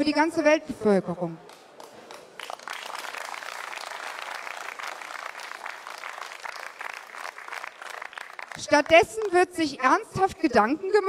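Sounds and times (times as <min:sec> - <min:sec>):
crowd applauding: 0:01.4 - 0:09.4.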